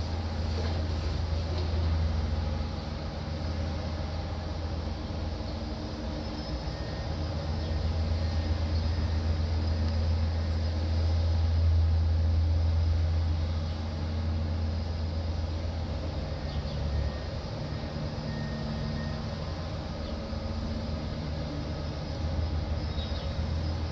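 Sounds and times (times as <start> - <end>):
diesel engine humming: 0.0 - 23.9.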